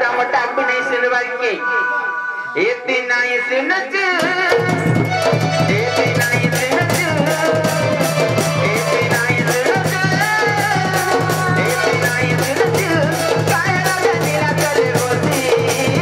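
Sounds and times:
drums and percussion: 3.9 - 16.0.

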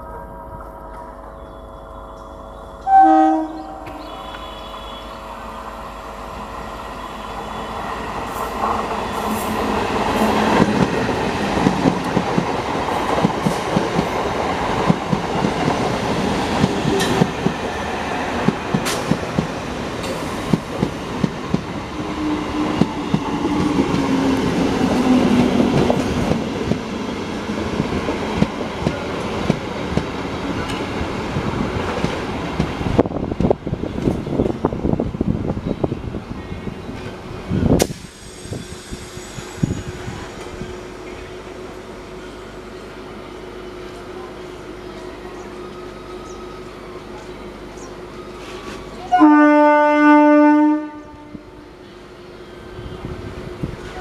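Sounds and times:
low falling whine: 0.0 - 7.0
train horn blast: 2.8 - 5.8, 49.1 - 51.7
train wheels rumbling past: 2.8 - 36.2.

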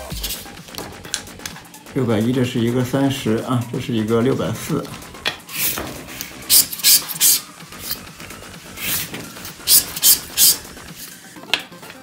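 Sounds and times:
scraper rasping on card: 0.0 - 0.6, 5.5 - 8.1, 8.7 - 11.2.

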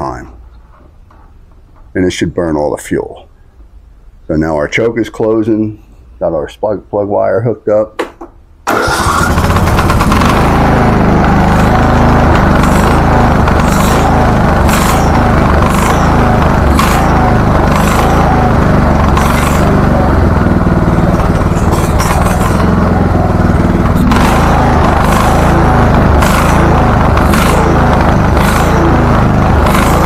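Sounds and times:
riding mower engine running: 8.6 - 30.0.

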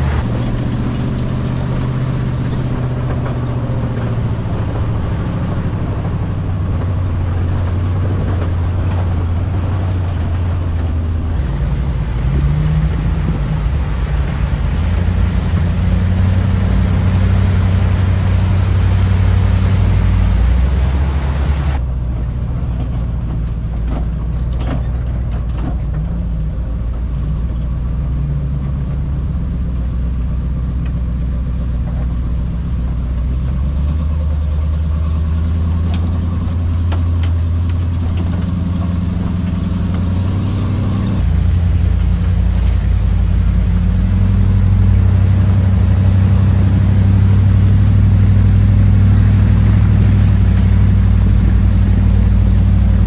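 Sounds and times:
truck engine running: 0.0 - 53.0
hiss: 11.4 - 21.8.

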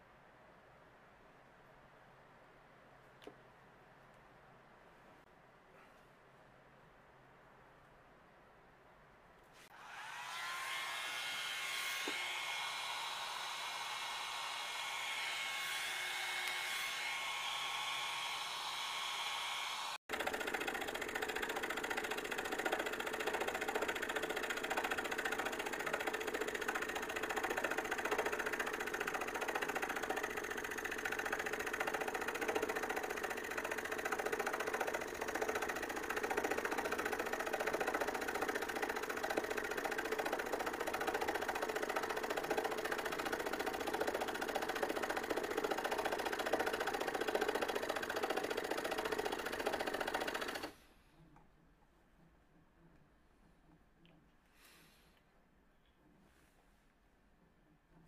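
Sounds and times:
scroll saw cutting wood: 9.6 - 50.9
small motor whirring with whine: 9.6 - 51.0.

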